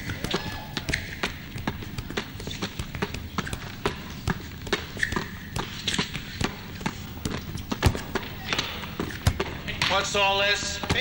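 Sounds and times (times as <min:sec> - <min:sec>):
balls smacking into hands: 0:00.0 - 0:11.0
basketballs bouncing on gym floor: 0:00.0 - 0:11.0.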